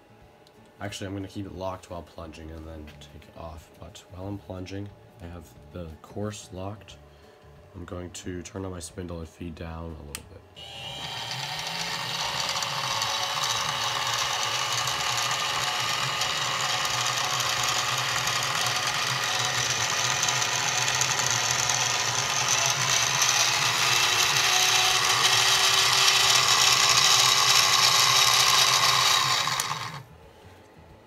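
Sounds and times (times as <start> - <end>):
milling machine running: 10.6 - 30.1.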